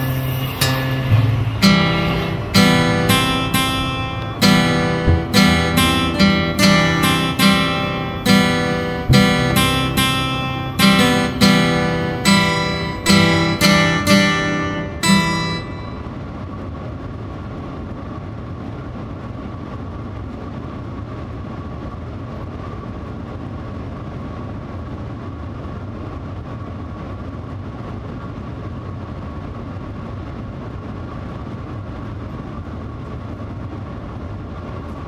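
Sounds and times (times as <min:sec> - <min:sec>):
acoustic guitar strumming: 0:00.0 - 0:16.2.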